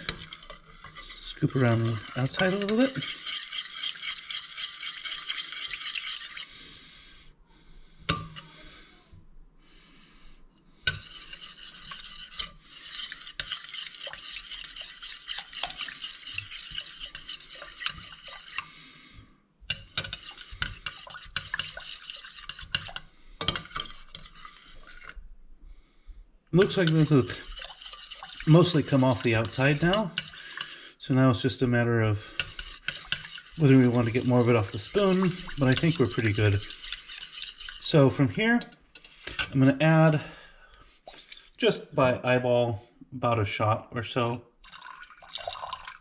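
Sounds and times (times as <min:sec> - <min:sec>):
metal spoon scraping a pot: 0:00.0 - 0:06.5, 0:10.8 - 0:18.8, 0:19.7 - 0:25.3, 0:26.6 - 0:39.6.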